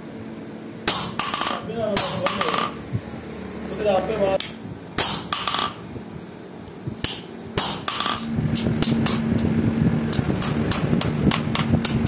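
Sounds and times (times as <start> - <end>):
steady low hum: 0.0 - 12.0
hammer striking chisel on metal: 0.8 - 3.0, 4.4 - 6.0, 7.0 - 9.4, 10.4 - 12.0.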